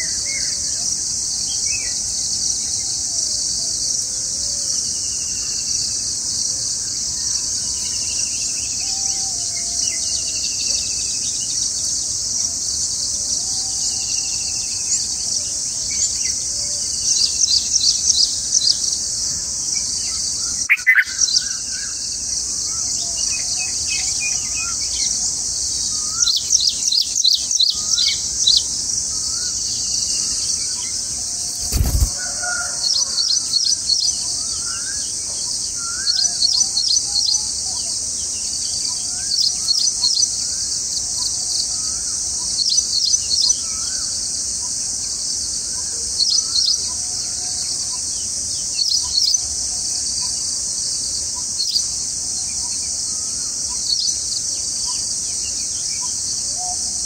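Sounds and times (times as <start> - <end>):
insects droning: 0.0 - 57.0
nestlings chirping: 31.4 - 32.1.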